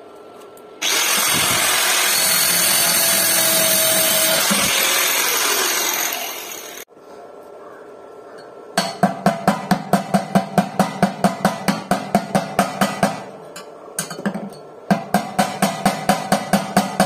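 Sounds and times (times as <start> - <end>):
angle grinder on steel: 0.8 - 6.9.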